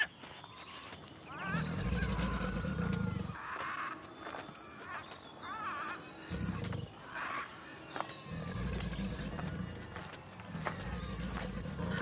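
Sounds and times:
large animal growling: 1.4 - 3.4, 10.5 - 12.0.

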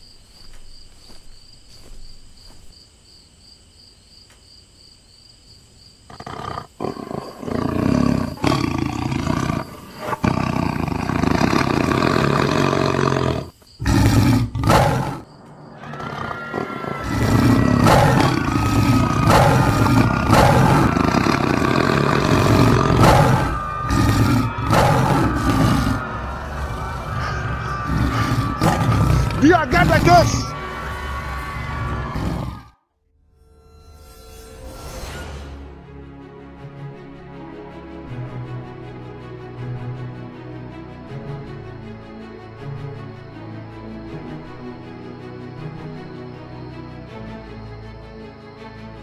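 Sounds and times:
crickets chirping: 0.0 - 32.6, 39.5 - 49.0
wild beast roaring and growling: 6.1 - 32.8.

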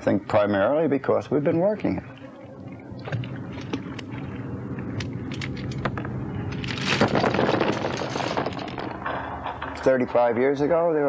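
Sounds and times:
steady low hum: 0.0 - 11.0
clams clattering into boat: 5.2 - 10.1.

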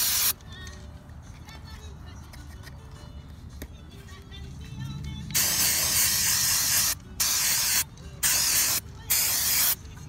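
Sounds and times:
aerosol can spraying: 0.0 - 0.4, 5.4 - 9.8.

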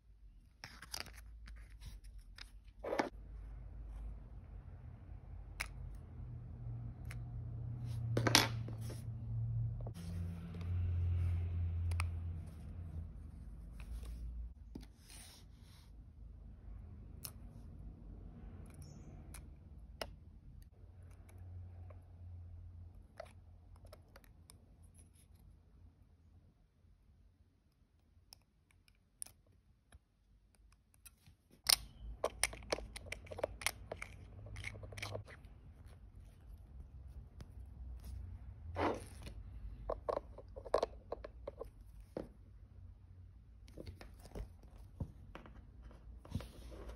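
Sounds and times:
watch case back clicking and scraping: 31.6 - 36.6, 38.8 - 42.2.

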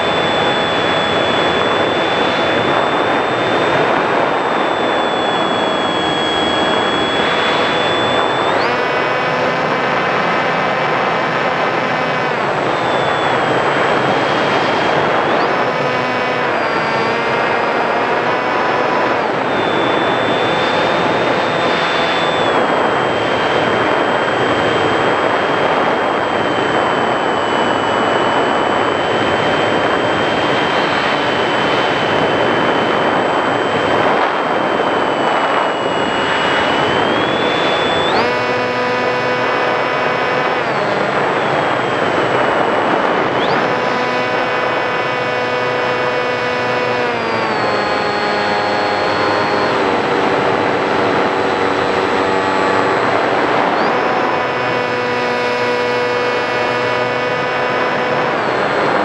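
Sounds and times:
electric motor and propeller whining: 0.0 - 59.0
wind rush: 0.1 - 8.7, 16.8 - 38.2, 39.4 - 43.8.

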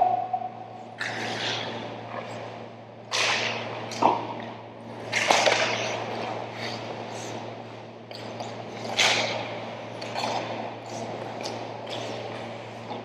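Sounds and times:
low arena hum: 0.0 - 13.0
ice skates scraping ice: 1.0 - 3.8, 4.9 - 7.4, 8.1 - 13.0.

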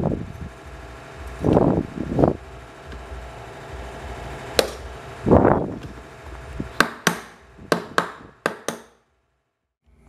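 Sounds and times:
hand tool tapping on metal: 6.8 - 9.0.

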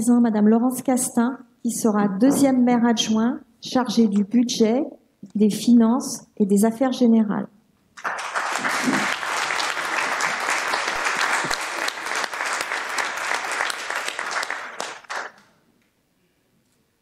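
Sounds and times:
people applauding: 8.0 - 15.5.

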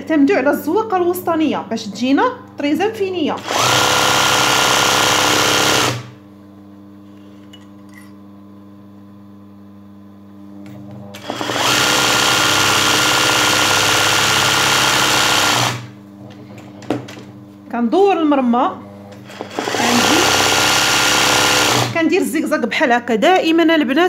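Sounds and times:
sewing machine stitching fast: 3.4 - 6.1, 11.2 - 15.9, 19.2 - 22.0.

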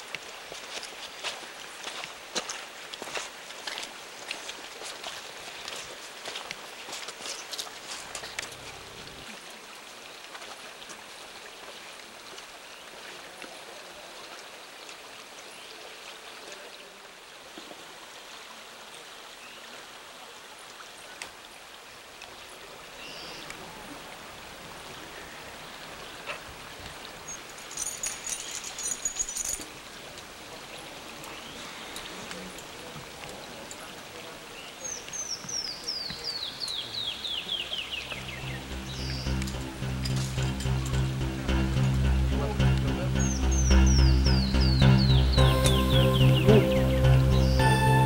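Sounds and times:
river rushing: 0.0 - 48.0
footsteps on rock: 0.6 - 8.8
high chirping: 38.0 - 48.0.

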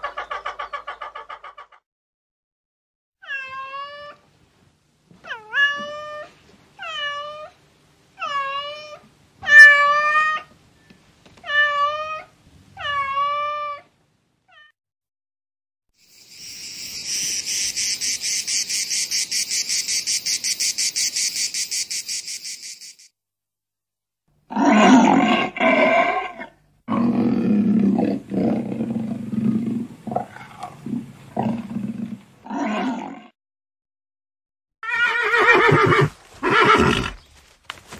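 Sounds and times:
cat meowing: 3.2 - 4.2, 8.2 - 10.5, 11.4 - 13.9, 14.5 - 14.8
cricket trilling: 16.0 - 23.1
lion growling and roaring: 24.5 - 33.3.

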